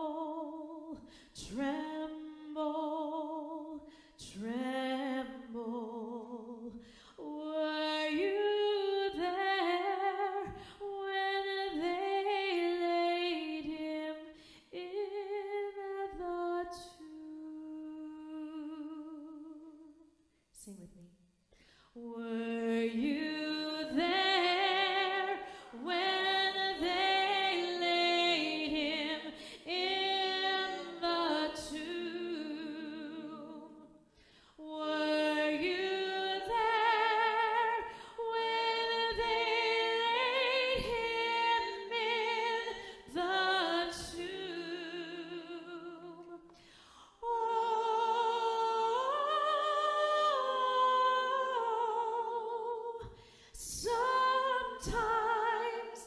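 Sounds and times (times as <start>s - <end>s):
person singing unaccompanied: 22.1s - 33.8s.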